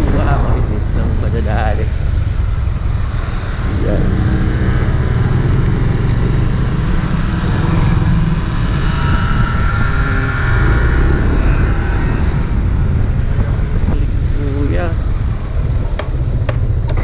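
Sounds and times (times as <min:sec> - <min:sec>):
faint rising whine: 0:00.0 - 0:17.0
wind rumbling on microphone: 0:00.0 - 0:17.0
scooter engine accelerating: 0:02.0 - 0:13.1.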